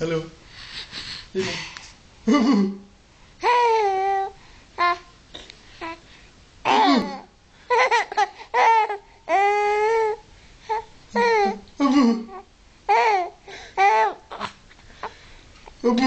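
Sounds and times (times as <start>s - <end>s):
baby babbling: 3.4s - 5.1s, 6.7s - 11.7s, 12.3s - 15.1s.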